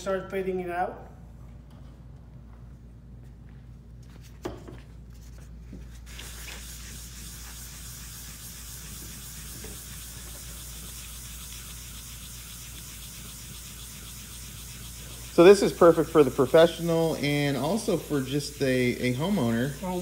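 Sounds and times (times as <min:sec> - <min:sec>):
sponge scrubbing wet stone tile: 0:05.9 - 0:20.0.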